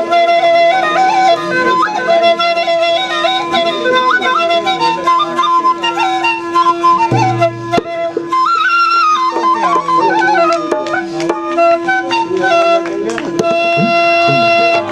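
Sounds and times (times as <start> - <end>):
double flute drone and melody: 0.0 - 14.9.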